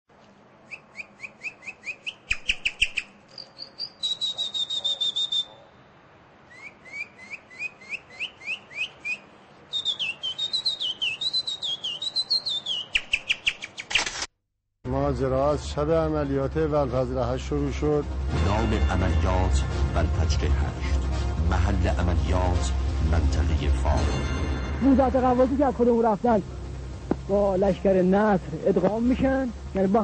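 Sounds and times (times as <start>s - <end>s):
nightingale singing: 0.6s - 5.7s, 6.4s - 14.0s.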